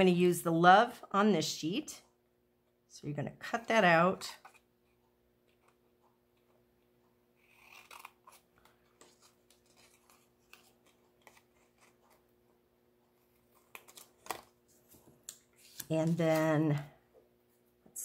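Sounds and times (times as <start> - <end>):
scissors snipping paper: 7.4 - 12.2.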